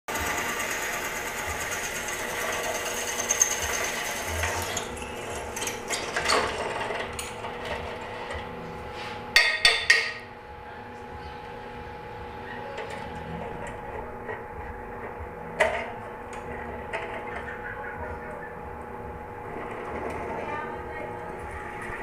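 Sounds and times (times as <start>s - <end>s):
drill bit cutting steel: 0.1s - 5.2s
drill press motor running: 0.1s - 8.4s.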